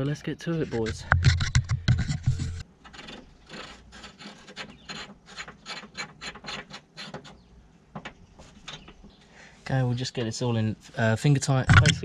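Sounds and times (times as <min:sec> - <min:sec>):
metal clicking and scraping: 0:00.6 - 0:07.4.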